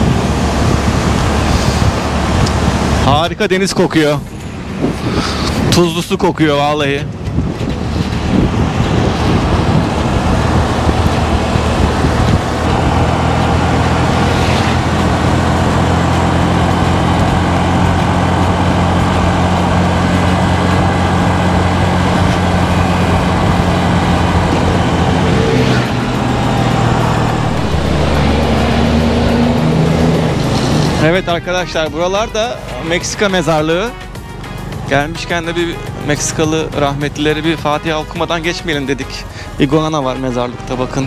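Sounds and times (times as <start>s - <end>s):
road and wind rush: 0.0s - 41.0s
scooter engine cruising: 7.2s - 31.2s.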